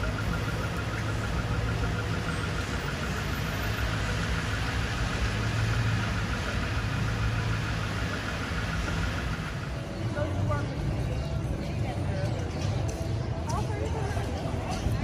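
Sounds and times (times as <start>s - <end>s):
fast regular ticking: 0.0s - 10.0s
car engines in traffic: 0.0s - 13.6s
tyres on wet street: 0.0s - 15.0s.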